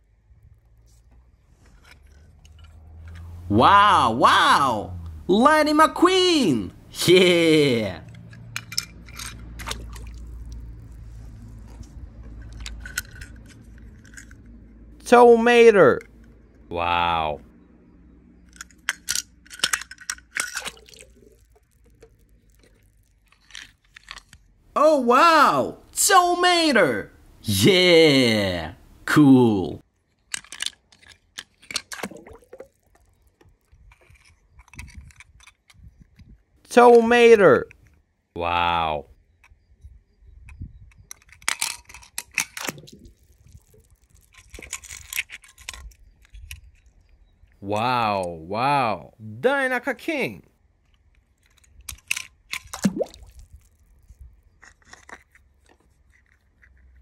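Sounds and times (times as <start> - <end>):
low steady rumble: 0.0 - 7.2, 7.8 - 15.1
metal toy cars clicking on stone: 0.7 - 3.4, 8.0 - 14.8, 18.2 - 24.6, 30.0 - 32.1, 32.8 - 36.4, 40.4 - 47.6, 50.8 - 52.8, 53.7 - 57.0
soft splashes in water: 9.4 - 11.9, 20.4 - 23.3, 31.9 - 33.8, 52.7 - 54.0.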